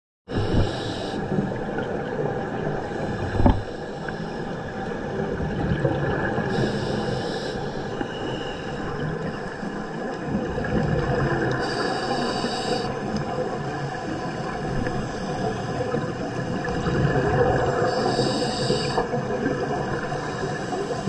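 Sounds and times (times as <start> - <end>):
underwater rumble and hiss: 0.3 - 21.0
underwater thump: 3.2 - 3.8
high hiss: 17.9 - 19.0.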